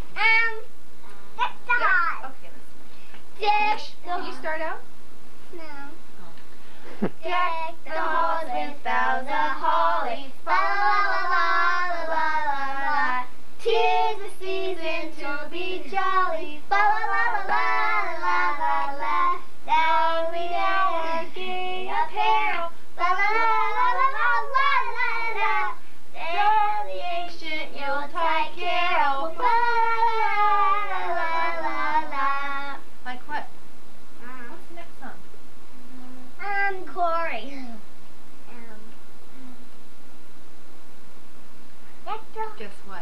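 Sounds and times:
woman and children singing: 7.2 - 32.8.

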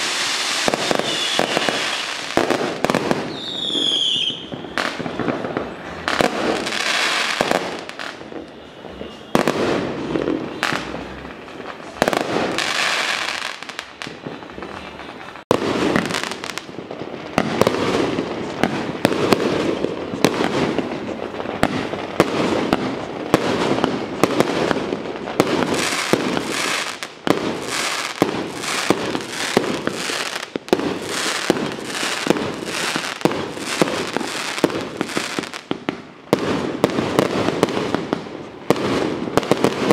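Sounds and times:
firecrackers bangs and crackling: 0.0 - 39.9
loud firework blasts: 0.0 - 39.9.

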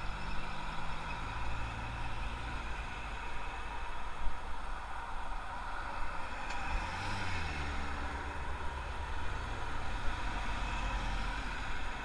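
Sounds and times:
traffic and road noise: 0.0 - 12.0.

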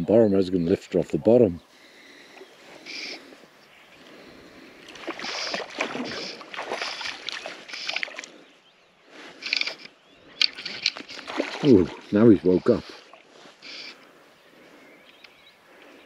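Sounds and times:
fish splashing and thrashing: 4.2 - 8.5, 9.2 - 14.0
fly line swishing: 4.9 - 8.2.

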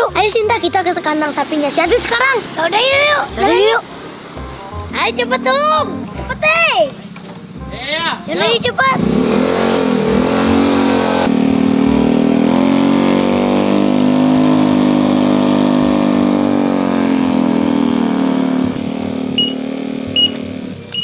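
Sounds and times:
motorcycle engine running: 5.0 - 21.0.

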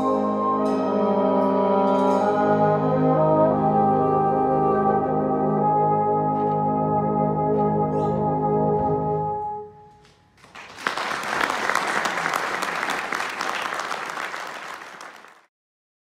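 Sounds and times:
audience applauding: 10.4 - 15.5.

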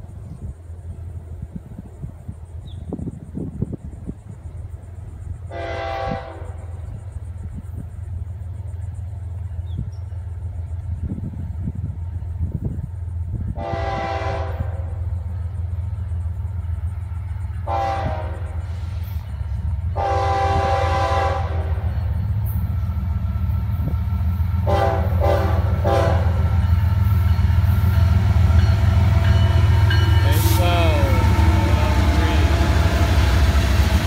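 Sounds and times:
locomotive rumble: 0.0 - 34.0
train air horn blasts: 5.5 - 7.0, 13.5 - 15.1, 17.6 - 19.2, 19.9 - 22.0, 24.6 - 27.1, 28.0 - 34.0.

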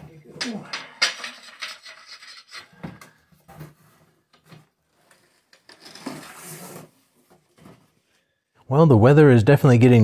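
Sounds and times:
tile scraping: 0.4 - 4.0, 5.0 - 7.8.

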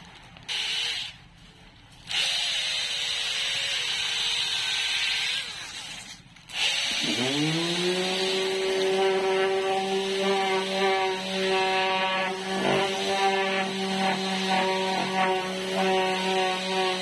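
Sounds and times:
power drill whine: 0.5 - 1.2, 2.1 - 17.0
sandpaper rasping on wood: 7.4 - 17.0.

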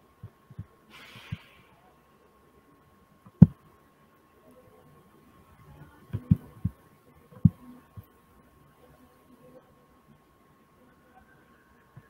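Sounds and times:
faint high-pitched tone: 8.6 - 12.0.

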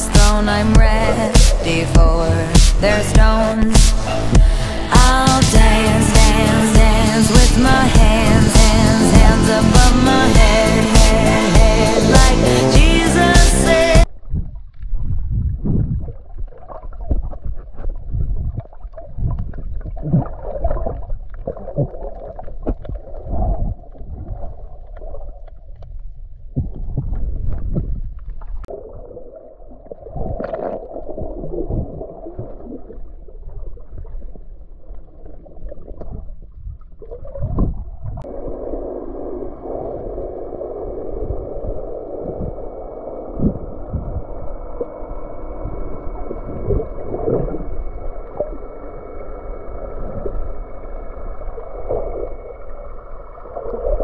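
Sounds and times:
hum with high whine: 0.0 - 14.5, 38.1 - 54.0
dull underwater thumps: 0.1 - 13.7
muffled underwater sloshing: 14.1 - 54.0.

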